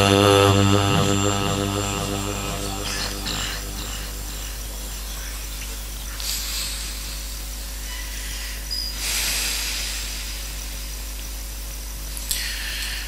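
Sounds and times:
low sound system hum: 0:00.0 - 0:06.1.

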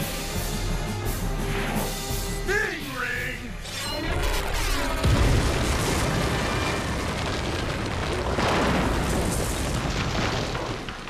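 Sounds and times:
explosion-like cartoon rumble: 0:04.9 - 0:11.0.

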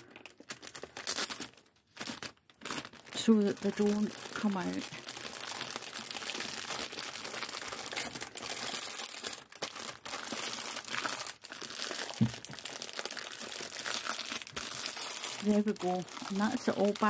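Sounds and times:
plastic bag crinkling: 0:00.0 - 0:17.0
thump: 0:12.2 - 0:12.5.

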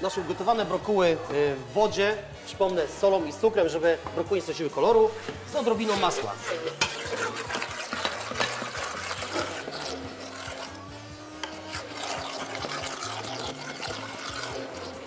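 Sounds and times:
stick blender in steel pot: 0:05.6 - 0:15.0.

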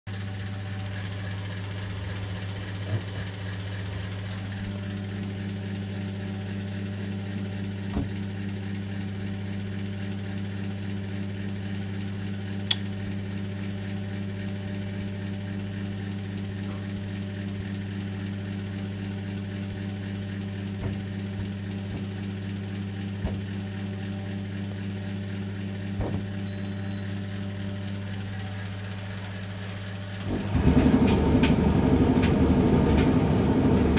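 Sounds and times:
low machine hum: 0:00.1 - 0:33.9.

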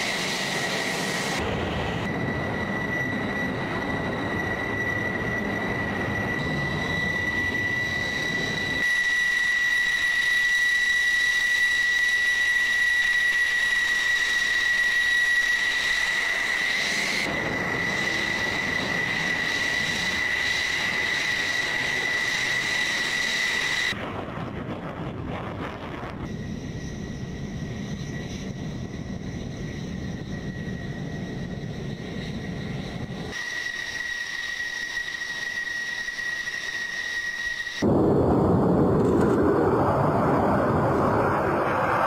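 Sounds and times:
high-pitched jet whine: 0:00.0 - 0:42.0
jet engines running: 0:00.0 - 0:42.0.

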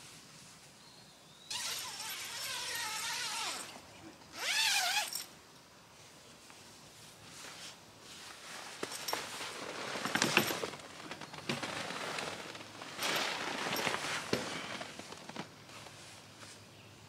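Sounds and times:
handling rustling: 0:07.4 - 0:16.6.

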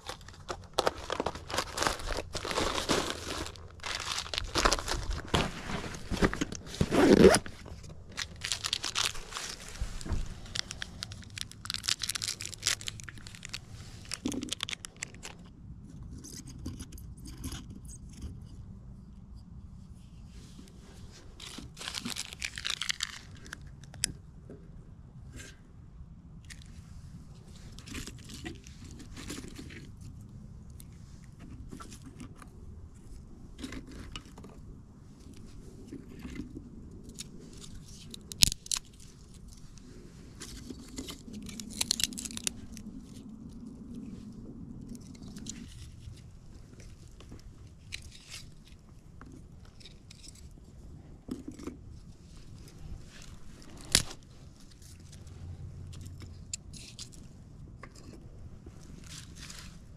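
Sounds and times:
kindling sticks rustling and clicking: 0:00.0 - 0:15.5
packet tearing and crinkling: 0:00.0 - 0:15.5, 0:21.4 - 0:24.0, 0:37.1 - 0:39.6, 0:40.5 - 0:43.2, 0:53.2 - 0:55.0.

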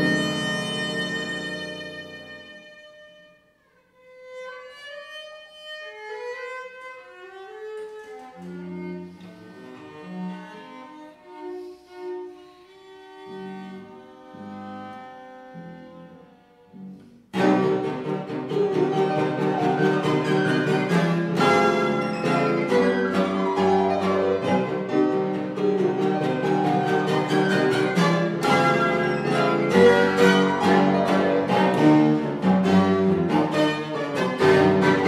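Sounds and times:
violin cello and fortepiano trio: 0:00.0 - 0:35.0.

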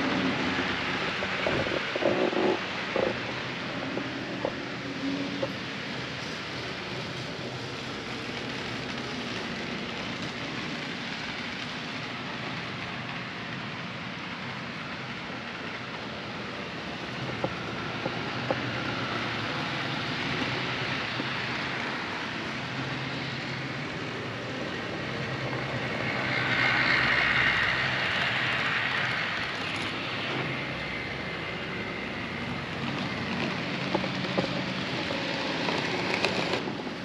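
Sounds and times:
model trains rumbling on track: 0:00.0 - 0:37.0.

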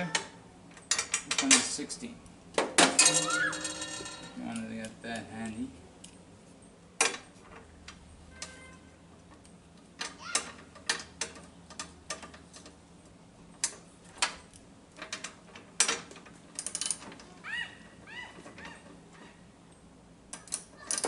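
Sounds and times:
wrench clicking on nuts: 0:20.3 - 0:21.0.

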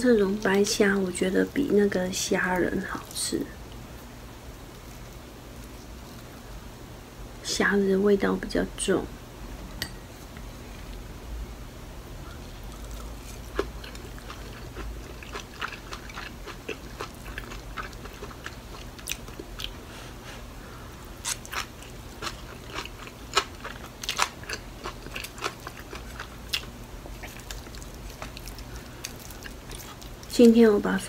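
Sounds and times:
crunchy chewing: 0:12.3 - 0:19.8, 0:21.2 - 0:30.4.

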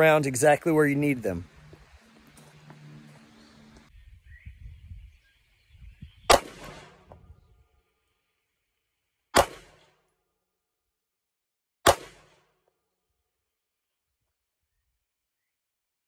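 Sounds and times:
handgun shots: 0:06.3 - 0:07.0, 0:09.4 - 0:09.9, 0:11.8 - 0:12.4.

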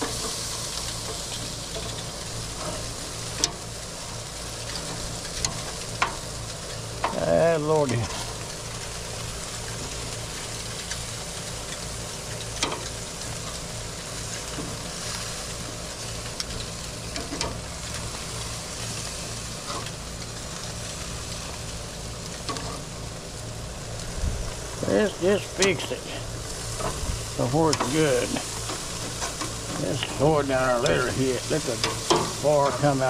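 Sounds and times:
meat sizzling on grill: 0:00.0 - 0:33.0
tongs clicking on grill grate: 0:12.5 - 0:12.9, 0:31.7 - 0:32.4.

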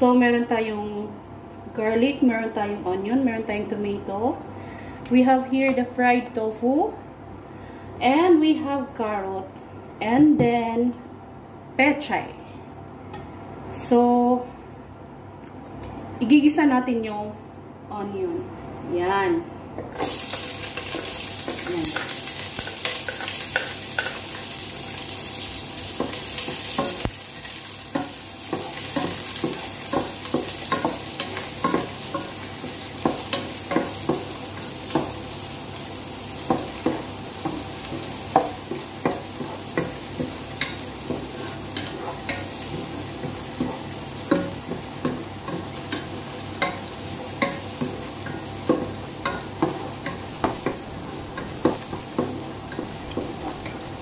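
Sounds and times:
onion sizzling in hot oil: 0:20.0 - 0:54.0
wooden spoon scraping a pot: 0:36.8 - 0:44.8.

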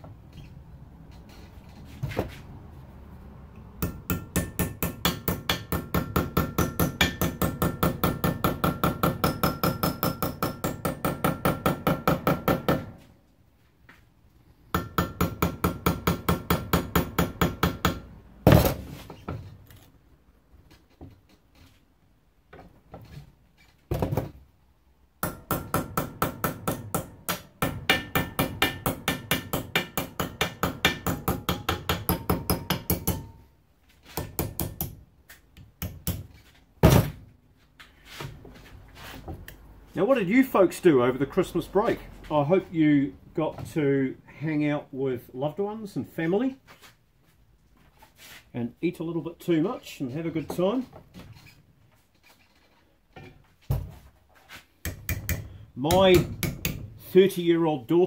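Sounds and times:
hammer tapping metal strip: 0:03.8 - 0:12.9, 0:25.2 - 0:33.4, 0:34.1 - 0:36.3, 0:54.8 - 0:56.9.

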